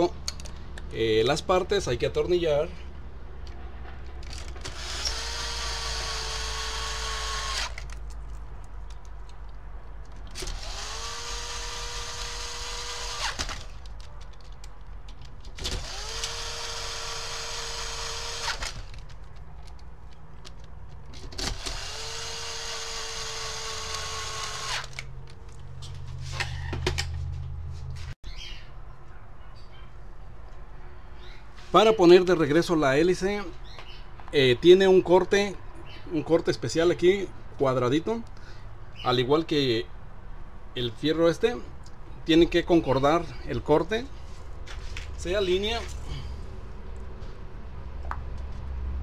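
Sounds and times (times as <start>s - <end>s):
cordless drill whining: 4.4s - 7.8s, 10.4s - 13.8s, 15.6s - 19.0s, 21.4s - 25.0s.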